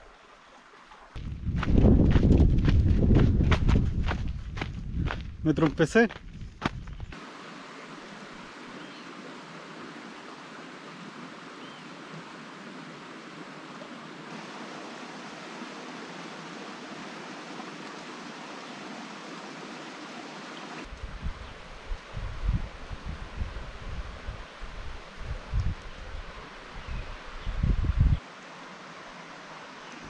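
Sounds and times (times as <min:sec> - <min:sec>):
creek rushing over rocks: 0:05.1 - 0:20.9.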